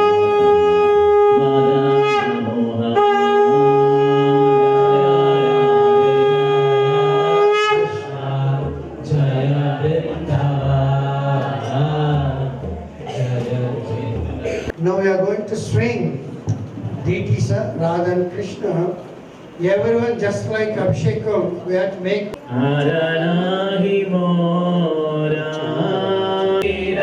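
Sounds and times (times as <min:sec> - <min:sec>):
conch shell blown: 0:00.0 - 0:08.2
jumble of voices: 0:08.2 - 0:14.9.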